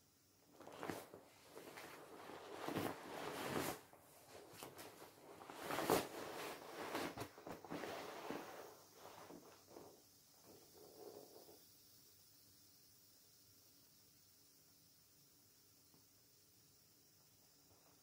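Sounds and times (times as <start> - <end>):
vinyl rustling and crinkling: 0.5 - 10.0.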